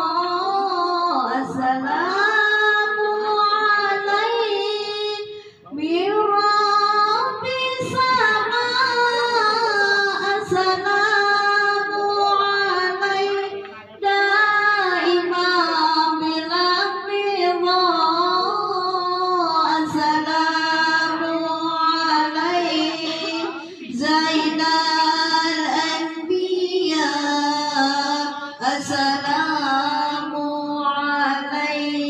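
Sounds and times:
woman chanting into a microphone: 0:00.0 - 0:32.0.

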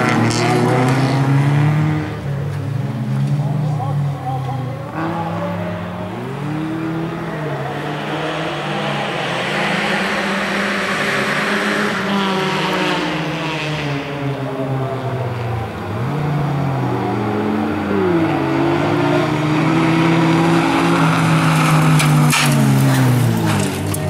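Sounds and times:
race car engines revving: 0:00.0 - 0:24.0
rushing noise: 0:05.4 - 0:13.6.

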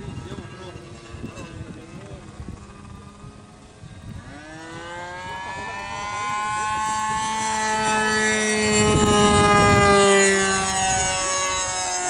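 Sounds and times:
model plane engine running: 0:00.0 - 0:12.0.

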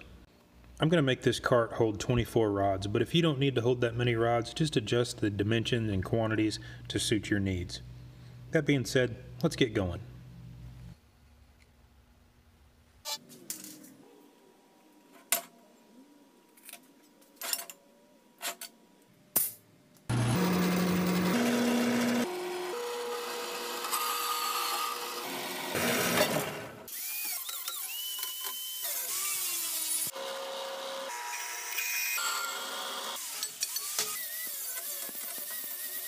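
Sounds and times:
band saw cutting steel: 0:20.1 - 0:36.0.

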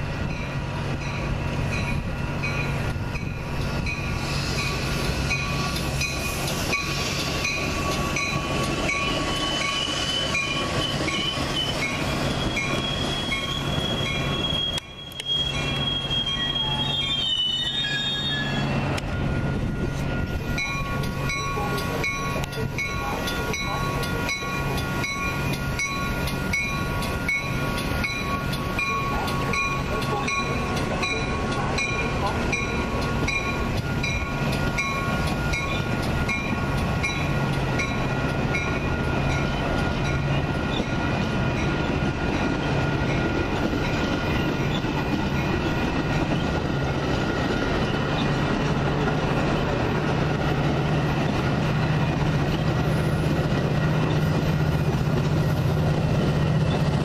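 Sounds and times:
low train hum: 0:00.0 - 0:57.0
high wheel squeal: 0:03.9 - 0:20.7
train wheels clicking over rail joints: 0:19.8 - 0:57.0.

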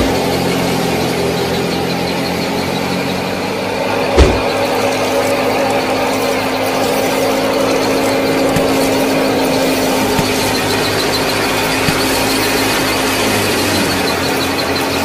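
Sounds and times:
small motor whirring: 0:00.0 - 0:15.0
sharp knock: 0:04.2 - 0:04.5.

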